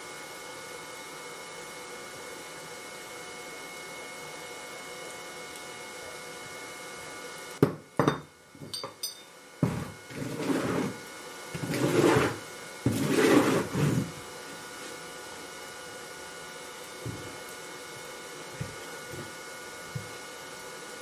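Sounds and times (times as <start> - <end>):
wood scraping on sand: 9.6 - 11.0, 11.6 - 14.2.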